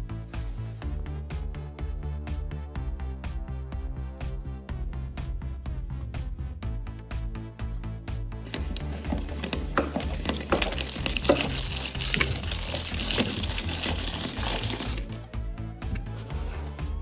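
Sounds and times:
meat grinder crushing sand: 8.5 - 15.3.

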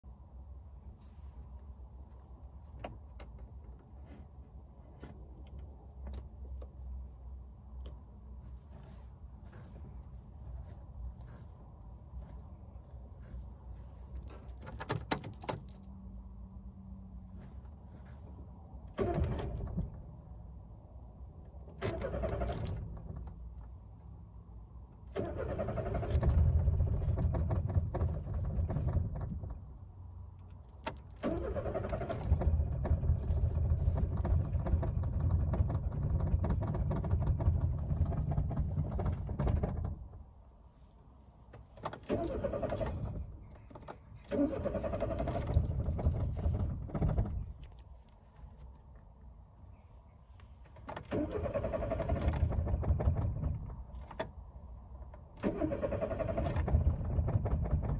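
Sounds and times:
car engine cranking on starter: 18.9 - 20.0, 21.8 - 23.4, 25.1 - 29.6, 31.2 - 40.1, 42.0 - 47.8, 50.9 - 53.9, 55.4 - 57.9.

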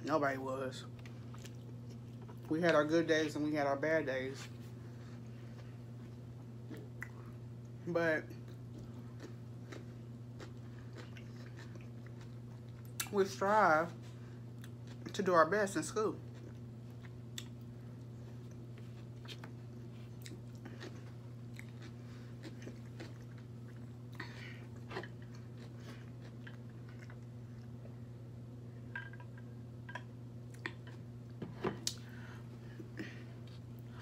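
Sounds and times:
steady low hum: 0.0 - 34.0
person chewing cucumber: 1.0 - 2.5, 5.1 - 7.8, 8.4 - 13.1, 14.5 - 15.2, 16.2 - 28.0, 30.4 - 31.1.

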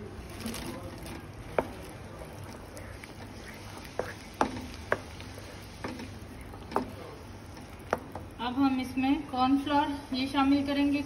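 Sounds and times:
spoon stirring food in a wok: 0.3 - 8.7
spoon clacking against pan: 1.4 - 8.4.

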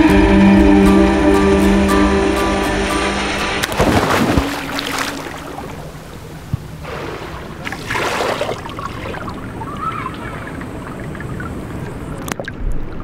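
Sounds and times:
rushing water: 2.2 - 13.0
swimmer splashing into water: 3.2 - 11.5.

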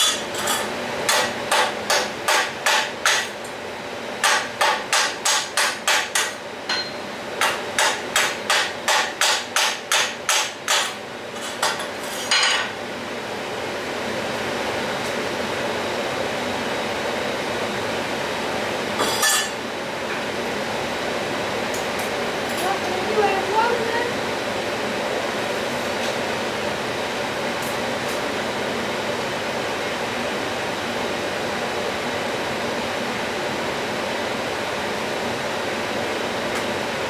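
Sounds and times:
chipping hammer striking metal: 4.2 - 11.0.

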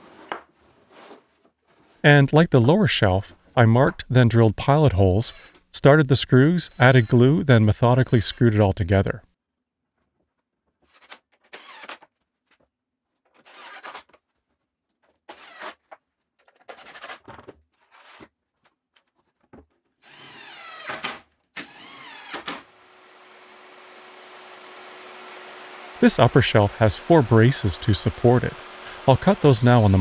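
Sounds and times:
cordless drill driving screws: 11.5 - 12.0, 20.0 - 26.0, 27.2 - 30.0.

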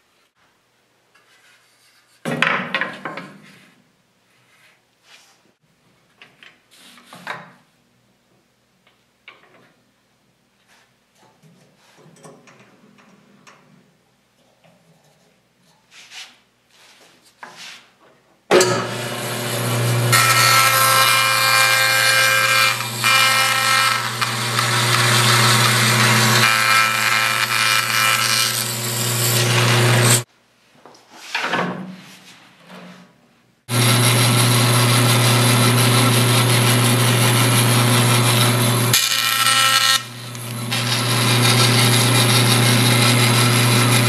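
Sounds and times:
electric power tool running: 18.6 - 30.3, 33.7 - 44.0.

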